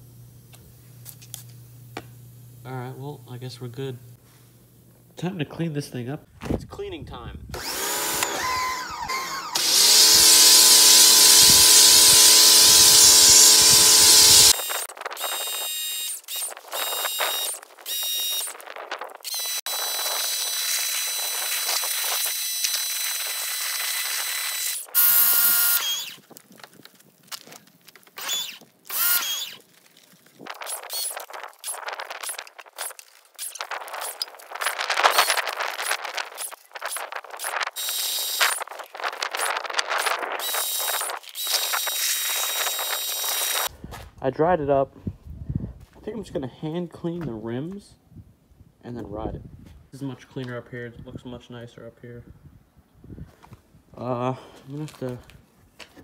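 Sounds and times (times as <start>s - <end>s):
pressure washer motor whine: 7.6s - 18.5s, 19.2s - 26.2s.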